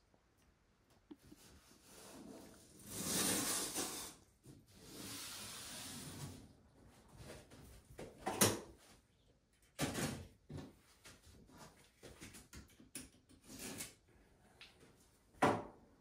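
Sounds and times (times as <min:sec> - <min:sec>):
tape tearing off roll: 0:02.8 - 0:04.2.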